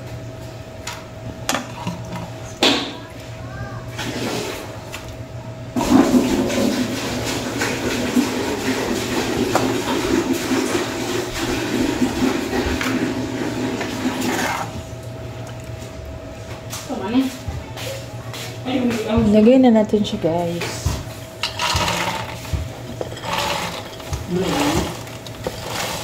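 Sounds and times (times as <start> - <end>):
peanuts rattling out of a pot: 21.4 - 26.0.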